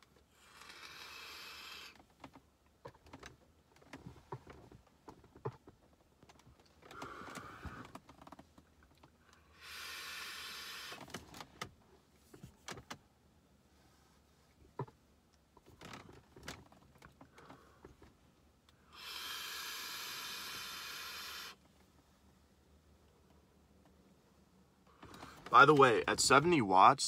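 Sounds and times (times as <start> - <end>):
vape coil hissing and sizzling: 0.4 - 2.0, 9.6 - 11.0, 18.9 - 21.6.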